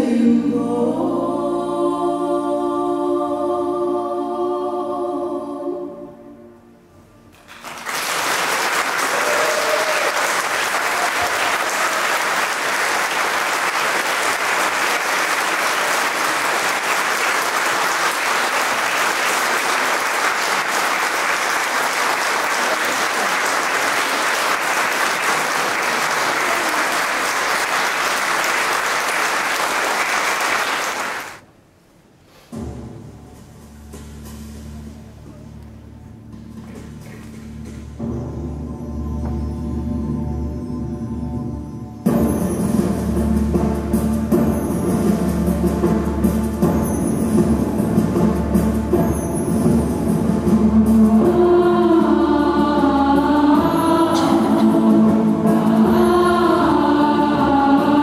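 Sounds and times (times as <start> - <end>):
choir singing a held chord: 0.0 - 6.8, 50.4 - 58.0
audience applauding: 7.5 - 31.4.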